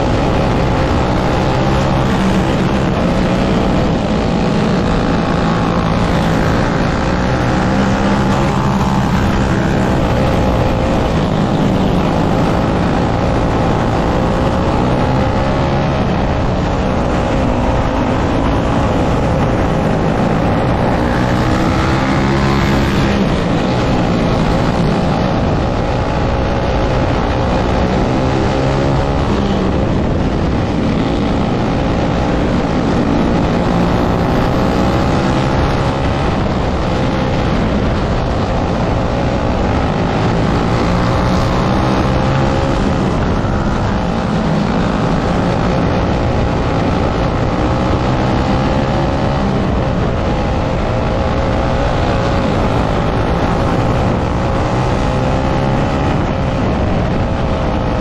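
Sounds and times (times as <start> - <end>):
kart engine at racing speed: 0.0 - 58.0.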